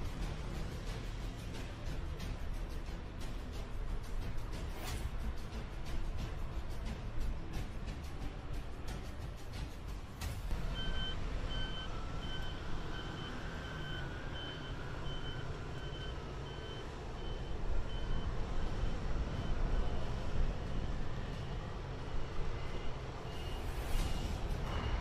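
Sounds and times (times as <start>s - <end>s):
jet engine rumble: 0.0s - 25.0s
electronic reversing beeps: 10.6s - 25.0s.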